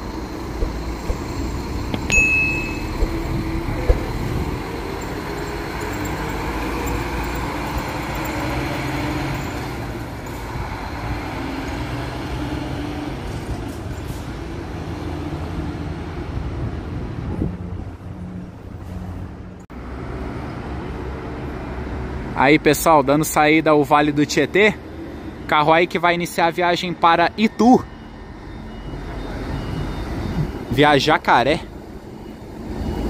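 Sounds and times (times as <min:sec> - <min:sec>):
diesel coach engine pulling away: 0:00.0 - 0:02.1, 0:02.7 - 0:17.3.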